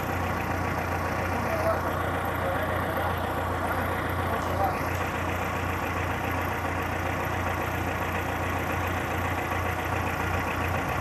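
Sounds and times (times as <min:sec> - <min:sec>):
forklift engine idling: 0:00.0 - 0:11.0.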